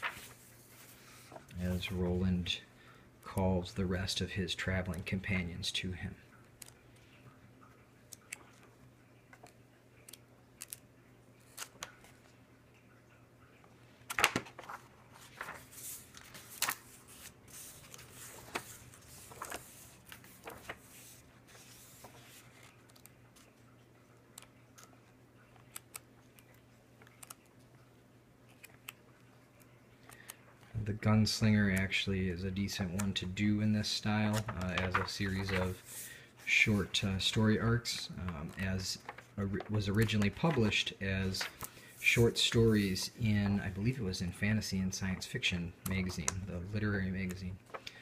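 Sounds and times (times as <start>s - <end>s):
comic book pages turning: 0.0s - 2.1s, 11.4s - 12.2s, 14.1s - 23.6s, 32.6s - 44.0s.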